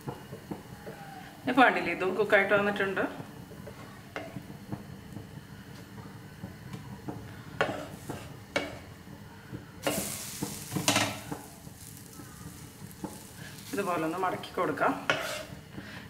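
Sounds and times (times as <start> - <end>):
faint sizzle: 0.0 - 16.0
wooden spatula scraping a pan: 7.6 - 8.7, 9.8 - 16.0.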